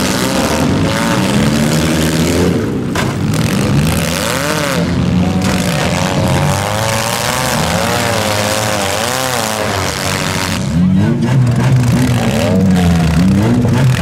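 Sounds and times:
wheels spinning in dirt: 0.0s - 10.8s
car engines revving hard: 0.0s - 14.0s.

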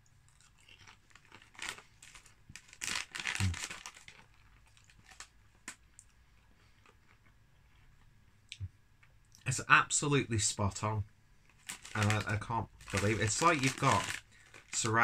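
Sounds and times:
crisp packet crinkling: 0.3s - 6.0s, 11.5s - 15.0s
crisps being crunched: 0.3s - 7.3s, 11.5s - 15.0s.

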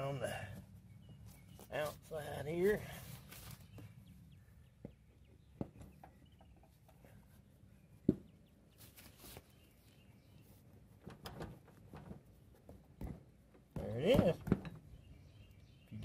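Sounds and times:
faint bird chirps: 14.8s - 16.0s.

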